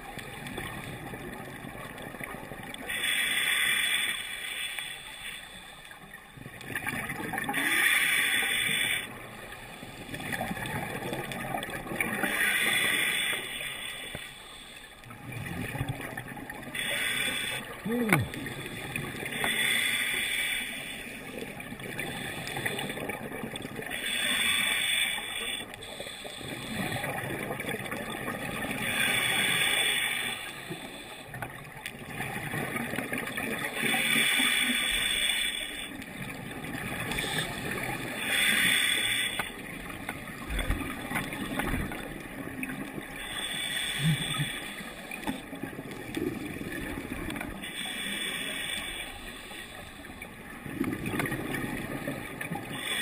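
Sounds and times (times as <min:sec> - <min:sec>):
exhaled bubbles underwater: 0:06.1 - 0:13.2, 0:15.1 - 0:19.7, 0:20.7 - 0:24.6, 0:25.6 - 0:35.1, 0:35.9 - 0:38.7, 0:39.5 - 0:47.6, 0:50.0 - 0:53.0.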